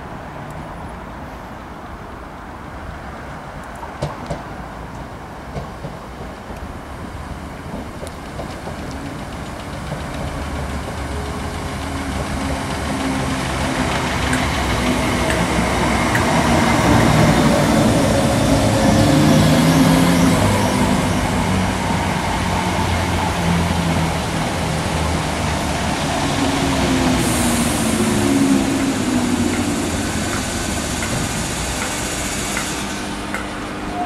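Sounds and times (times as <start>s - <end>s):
train wheels rumbling on rails: 3.7s - 34.0s.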